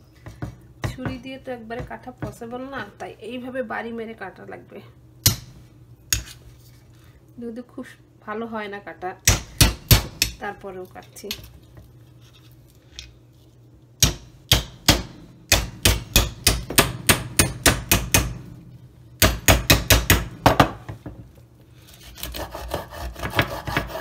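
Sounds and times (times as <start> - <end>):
pestle hammering on knife: 9.2 - 10.4, 14.0 - 18.5, 19.2 - 20.8, 22.2 - 24.0
knife scraping through fish head: 21.8 - 24.0.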